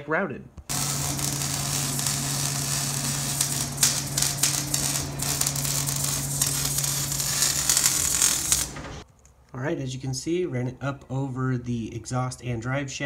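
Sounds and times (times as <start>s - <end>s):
low hum: 0.7s - 9.0s
welding arc crackling and sizzling: 0.7s - 9.0s.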